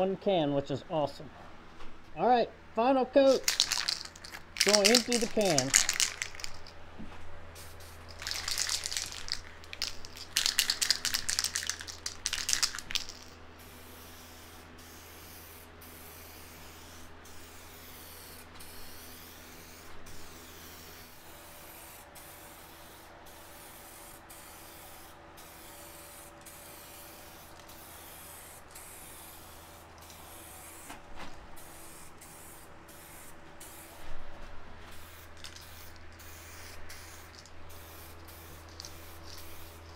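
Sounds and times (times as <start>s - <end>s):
aerosol spray can hissing: 3.4s - 6.7s, 7.6s - 30.9s, 35.0s - 39.9s.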